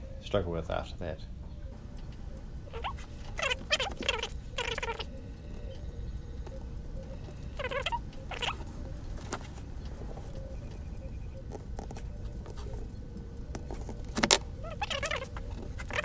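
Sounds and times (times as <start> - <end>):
low steady hum: 0.0 - 16.0
short high squeaks: 2.0 - 5.8, 7.1 - 8.7.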